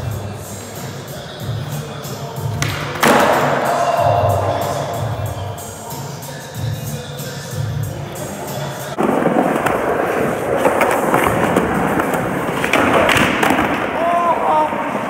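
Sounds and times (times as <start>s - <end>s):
skateboard wheels rolling on concrete: 7.5s - 15.0s
skateboard deck clacks: 9.0s - 14.0s.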